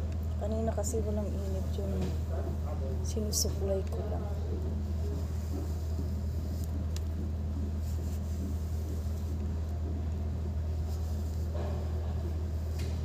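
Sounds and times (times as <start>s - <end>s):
low background rumble: 0.0s - 13.0s.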